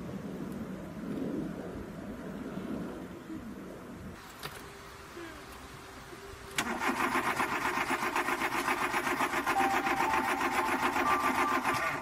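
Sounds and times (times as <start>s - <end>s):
car starter motor cranking: 6.6s - 12.0s.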